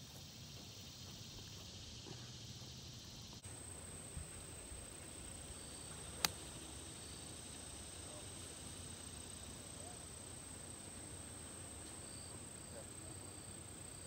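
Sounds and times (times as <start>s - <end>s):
insects droning: 0.0s - 14.0s
golf club striking ball: 6.1s - 6.6s.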